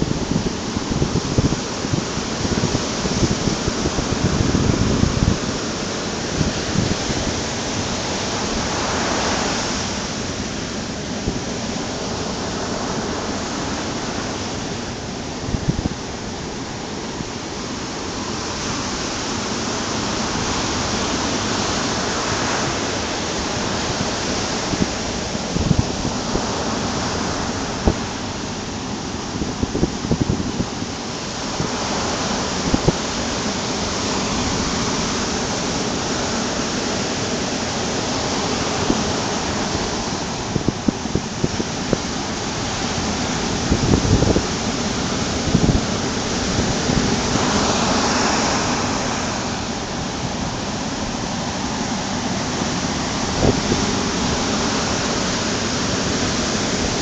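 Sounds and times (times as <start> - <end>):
ocean waves breaking on beach: 0.0 - 57.0.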